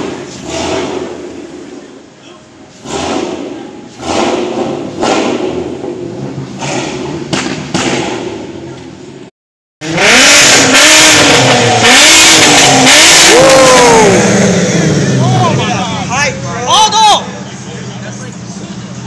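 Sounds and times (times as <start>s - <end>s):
sports car engine revving: 0.0s - 2.1s, 2.7s - 9.0s, 9.8s - 16.7s
car rolling: 0.0s - 9.3s.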